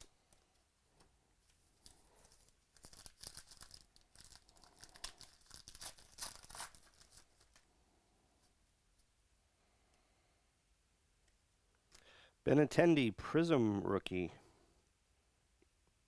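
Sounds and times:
foil wrapper ripping and rustling: 1.8s - 7.6s.

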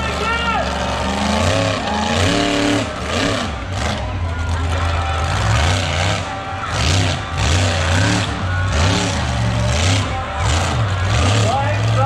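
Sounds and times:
truck engine revving hard: 0.0s - 12.0s.

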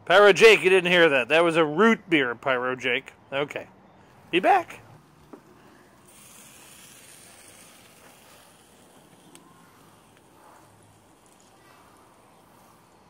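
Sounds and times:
chicken sizzling on grill: 5.1s - 13.0s
faint ticks: 9.0s - 10.3s.

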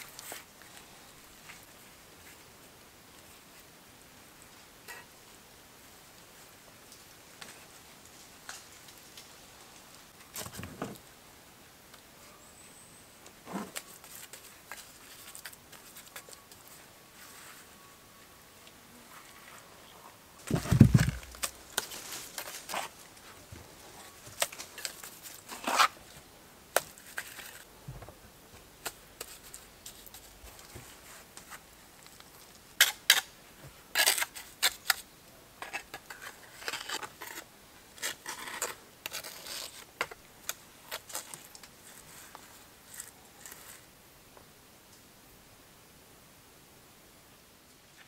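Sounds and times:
stones scraping and knocking: 20.4s - 23.0s
stone thudding down: 20.5s - 21.4s.

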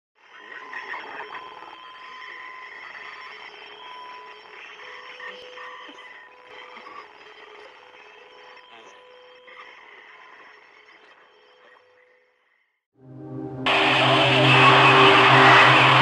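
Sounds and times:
held radio tones: 13.2s - 16.0s
radio static hiss: 13.7s - 16.0s.

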